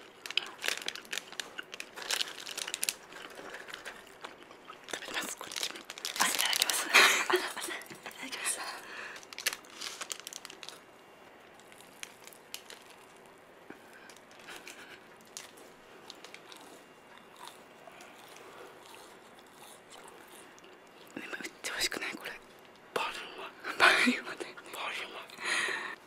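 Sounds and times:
crunchy chewing of snack: 0.0s - 6.9s, 8.8s - 21.2s
plastic wrapper crinkling: 0.0s - 7.4s, 9.0s - 13.4s, 14.0s - 16.7s.

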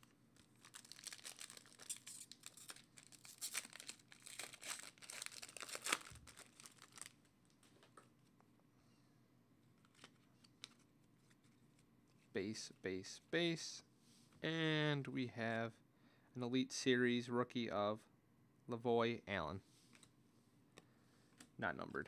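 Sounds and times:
foil wrapper crinkling: 0.0s - 7.3s.

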